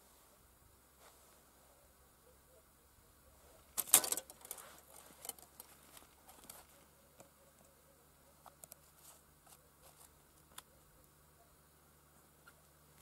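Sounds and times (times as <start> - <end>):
fishing tackle clicks and rustles: 3.8 - 6.8.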